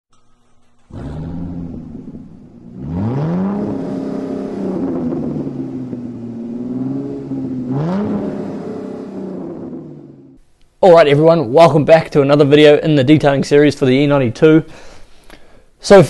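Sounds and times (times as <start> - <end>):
car engine revving: 0.4 - 10.4.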